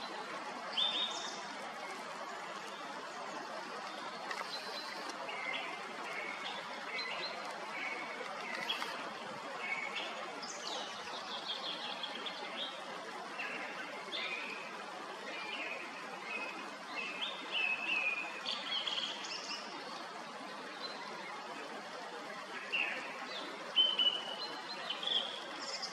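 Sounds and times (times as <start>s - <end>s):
song thrush singing: 0.0s - 14.7s
stream rushing: 0.0s - 15.3s.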